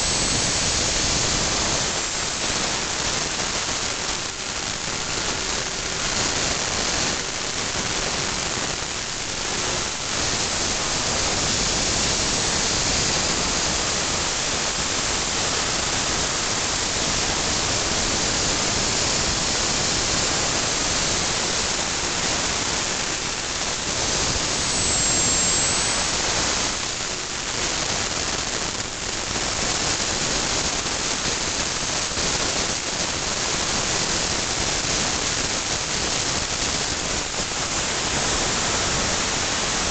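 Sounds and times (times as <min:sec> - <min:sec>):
gas turbine roaring at idle: 0:00.0 - 0:06.1, 0:08.8 - 0:27.9.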